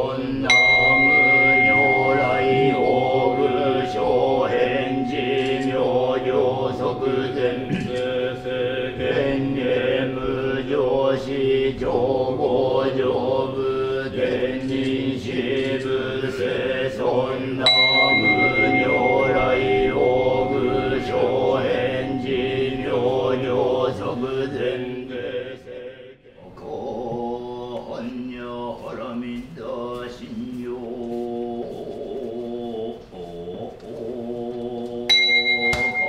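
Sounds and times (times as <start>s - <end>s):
monks chanting in unison: 0.0s - 36.0s
temple bell ringing: 0.4s - 13.0s, 15.4s - 25.4s, 35.1s - 36.0s.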